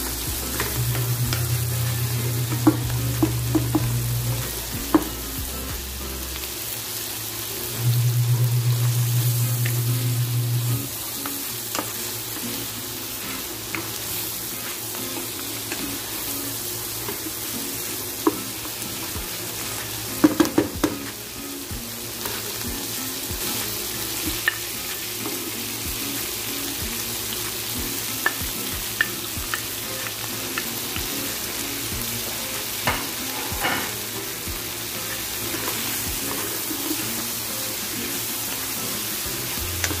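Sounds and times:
meat sizzling in a frying pan: 0.0 - 40.0.

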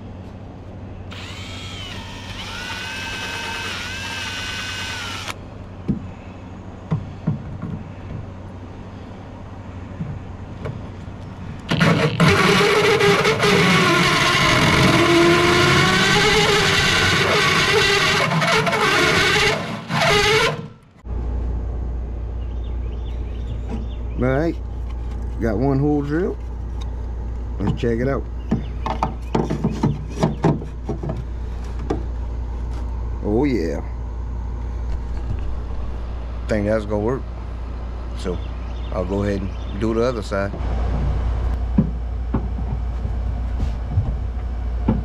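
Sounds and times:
cordless drill whining: 1.1 - 5.4
hole saw grinding through deck: 1.1 - 5.4, 11.7 - 20.8.

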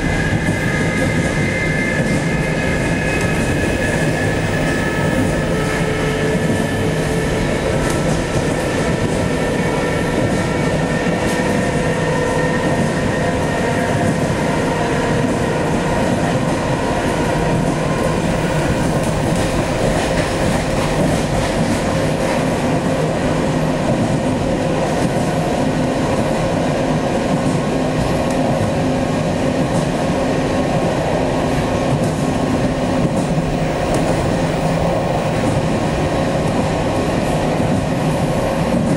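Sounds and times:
train wheels rumbling on rails: 0.0 - 38.9
click: 33.9 - 34.1.

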